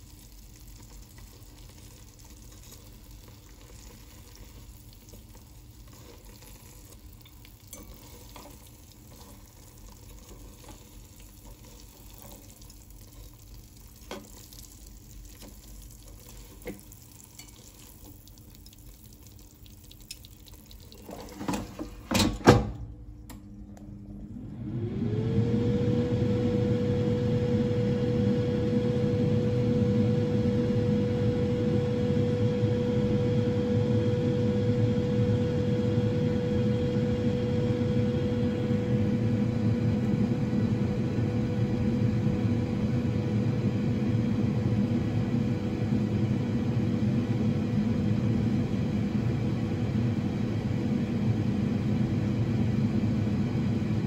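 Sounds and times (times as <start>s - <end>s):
faint sizzling: 0.0s - 22.1s
air fryer fan whirring: 0.0s - 54.0s.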